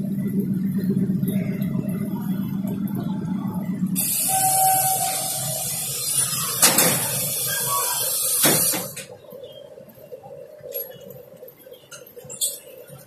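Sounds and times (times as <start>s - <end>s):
train rumble: 0.0s - 13.0s
loud steady hiss: 4.0s - 9.2s.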